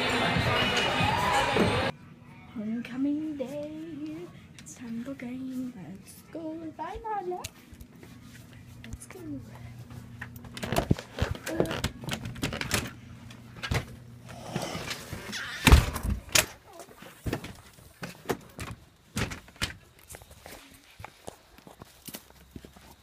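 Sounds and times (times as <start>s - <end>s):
footsteps on concrete: 20.0s - 23.0s.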